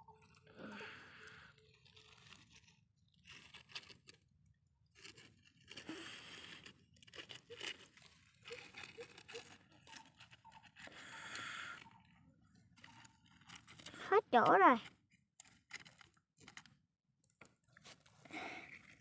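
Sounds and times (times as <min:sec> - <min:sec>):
toy car scraping on gritty dirt: 0:01.0 - 0:12.0, 0:12.7 - 0:16.7.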